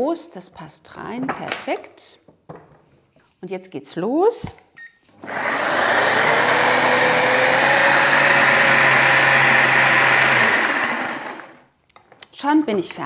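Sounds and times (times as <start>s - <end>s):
food processor motor whine: 5.2s - 11.7s.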